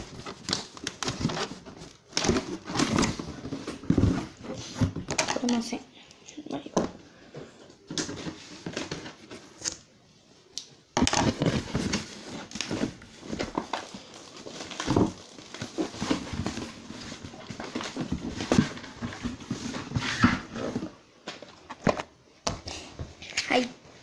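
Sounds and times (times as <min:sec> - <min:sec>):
packaging rustling and scraping: 0:00.0 - 0:05.7, 0:11.0 - 0:22.1.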